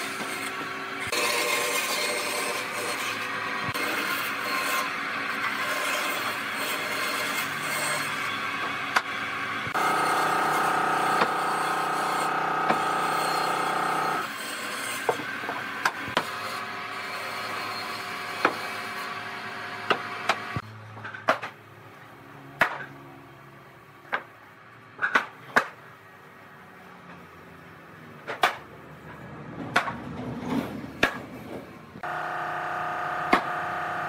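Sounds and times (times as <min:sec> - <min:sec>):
woodworking machine running: 0:08.2 - 0:20.6, 0:32.0 - 0:34.0.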